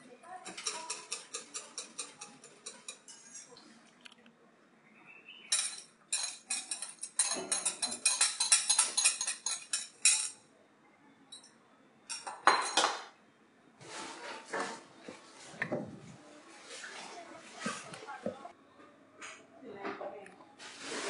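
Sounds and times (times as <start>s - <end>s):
metal utensil clinking ceramic bowl: 0.4s - 3.6s, 5.5s - 10.4s, 12.1s - 13.0s.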